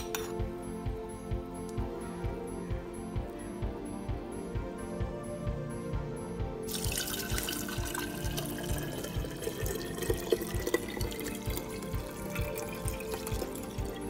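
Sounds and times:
background music with beat: 0:00.0 - 0:14.0
liquid pouring through strainer: 0:06.7 - 0:14.0.

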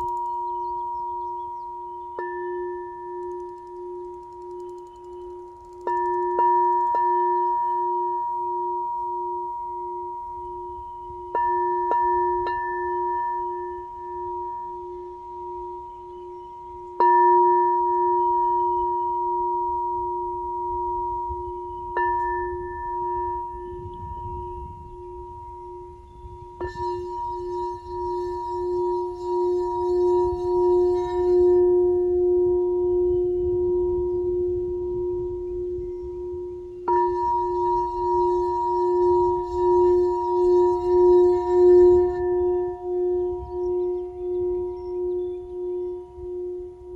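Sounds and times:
crystal singing bowl ringing: 0:00.0 - 0:46.9.

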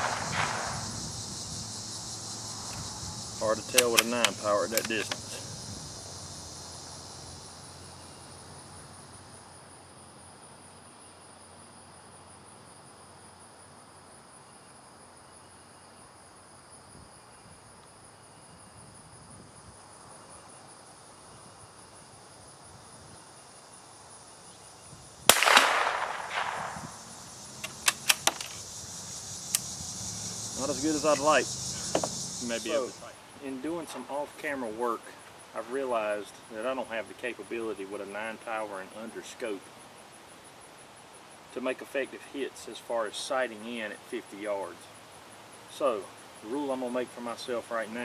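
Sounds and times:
rifle shot: 0:00.0 - 0:01.1, 0:25.3 - 0:27.0
insects trilling: 0:00.0 - 0:48.0
quick clicks: 0:03.6 - 0:05.4, 0:25.3 - 0:26.9, 0:27.6 - 0:28.6.

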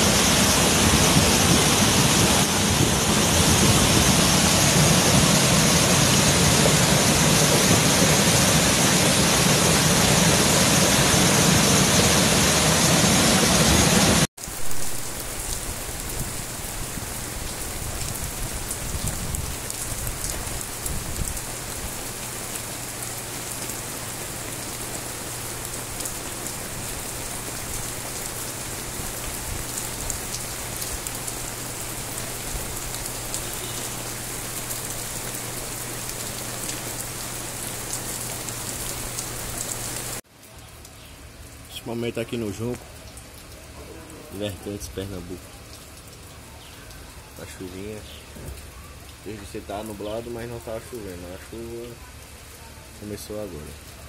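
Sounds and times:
river rushing: 0:00.0 - 0:15.3
steady rain: 0:00.0 - 0:54.0.

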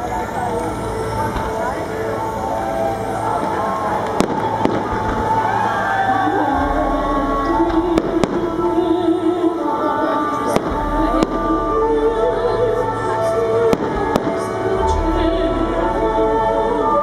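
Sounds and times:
music soundtrack: 0:00.0 - 0:17.0
fireworks bursting with bangs: 0:01.1 - 0:09.5, 0:10.2 - 0:11.9, 0:13.6 - 0:15.1.

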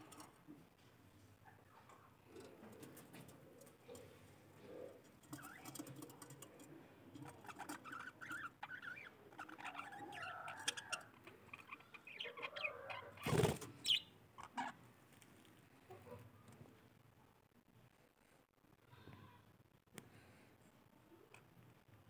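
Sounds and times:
budgerigars chattering and warbling: 0:07.2 - 0:14.8.

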